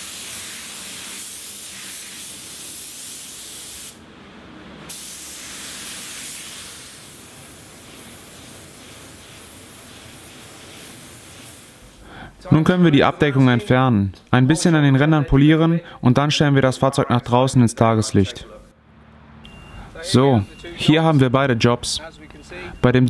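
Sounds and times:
paint spray gun hissing: 0.0 - 4.0, 4.9 - 12.0.

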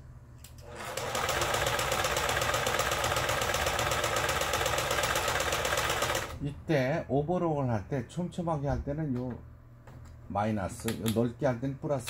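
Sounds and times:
sewing machine running: 0.6 - 6.4.

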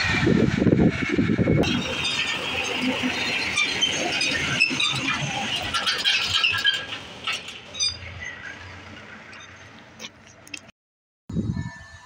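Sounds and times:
tractor metalwork rattling: 0.0 - 10.7.

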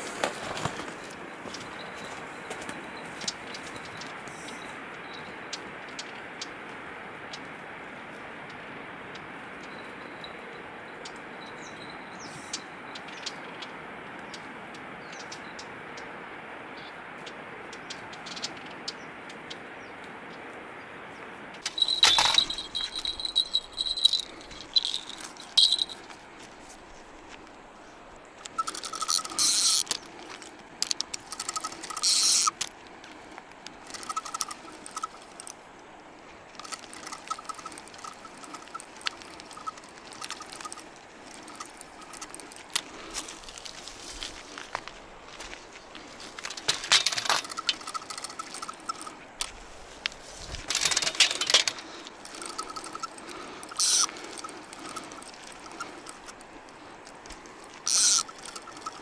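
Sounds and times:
outdoor background hiss: 0.0 - 59.0
fishing tackle clicking and rattling: 21.6 - 26.2, 28.4 - 32.8, 33.6 - 35.6, 36.5 - 43.8, 46.4 - 49.4, 50.5 - 59.0
spinning reel winding: 21.7 - 26.0, 28.5 - 30.1, 30.8 - 32.6, 33.8 - 35.5, 36.6 - 42.5, 47.1 - 49.1, 50.8 - 56.4, 57.8 - 59.0.

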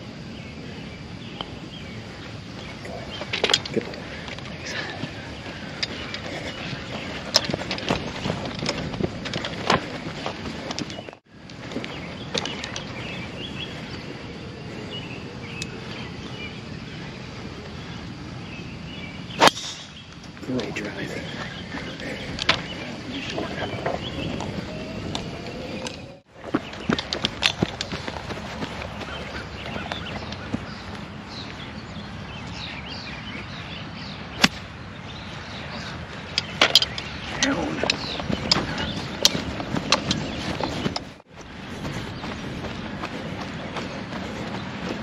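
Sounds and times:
faint birdsong: 0.0 - 45.0
outdoor background noise: 0.0 - 45.0
golf club striking ball: 19.4 - 19.9.

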